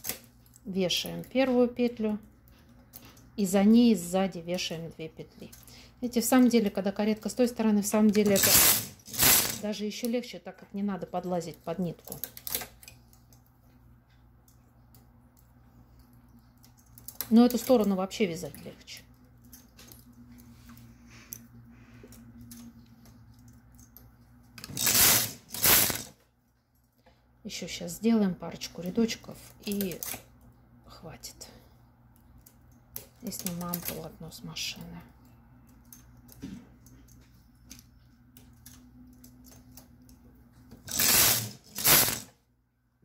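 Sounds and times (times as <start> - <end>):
knitting carriage sliding: 8.2 - 9.7, 24.6 - 26.1, 40.8 - 42.3
knitting machine carriage clattering: 40.8 - 42.2.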